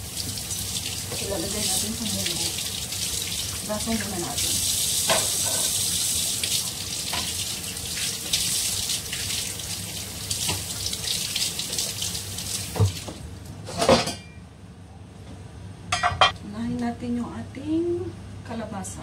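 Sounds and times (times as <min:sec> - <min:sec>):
tap running into sink: 0:10.4 - 0:10.7, 0:12.7 - 0:13.2.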